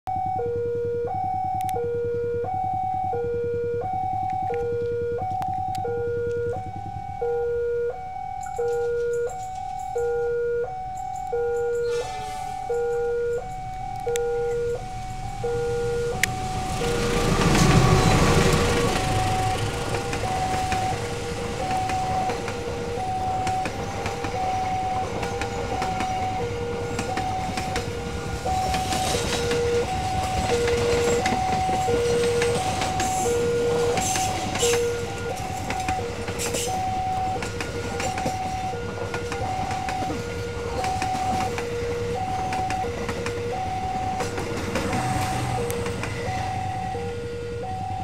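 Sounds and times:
level-crossing two-tone chime: 0.2 - 44.3
train rumbling and clattering: 10.8 - 48.0.

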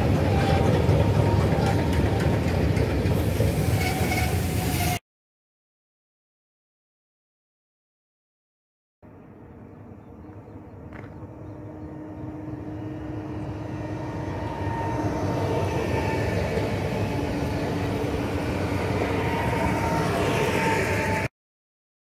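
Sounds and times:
train wheels rumbling on rails: 0.0 - 5.0, 10.1 - 21.3
train motor whine: 11.1 - 21.3.

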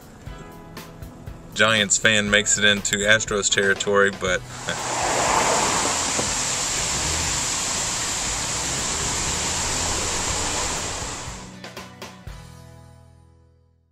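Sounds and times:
water rushing down waterfall wall: 4.5 - 11.5.

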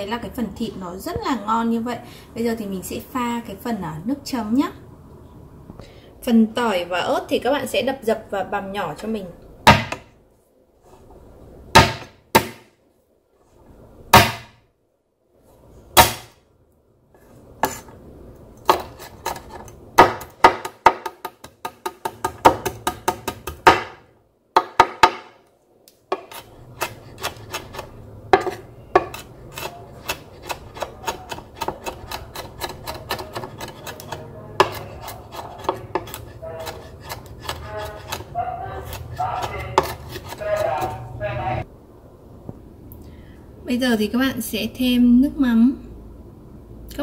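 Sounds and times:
knife chopping on wooden board: 9.7 - 10.1, 11.8 - 12.7, 14.2 - 14.6, 16.0 - 16.4, 18.6 - 24.0, 24.6 - 25.4, 26.1 - 41.0.

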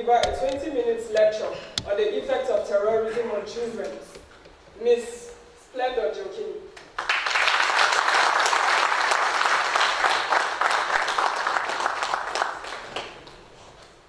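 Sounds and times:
audience applause: 7.0 - 13.5.

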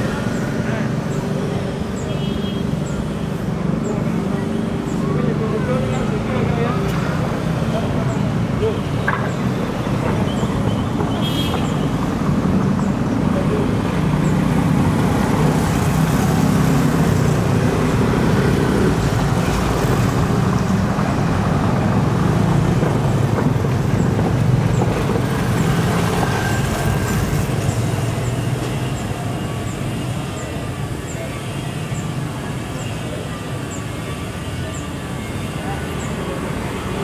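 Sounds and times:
cars and motorcycles passing: 0.0 - 37.0.

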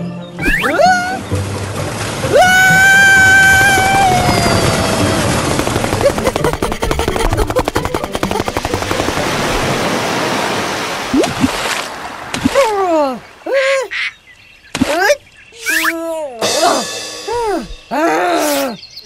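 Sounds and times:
cartoon water surge: 0.4 - 1.2, 3.1 - 12.7
fast rattle: 4.2 - 9.2.

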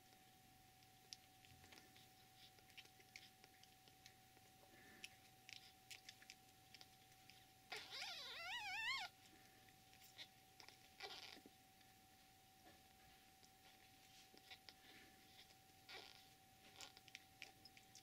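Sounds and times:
kitten mewing: 7.7 - 9.2.

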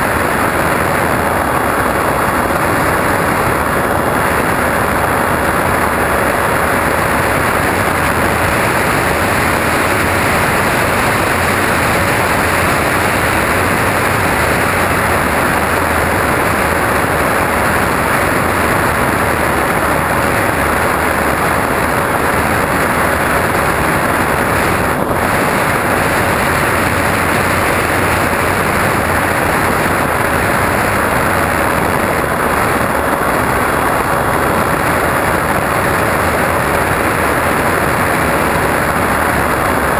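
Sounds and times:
airflow rushing over microphone: 0.0 - 39.9
motor and propeller hum: 0.0 - 39.9.

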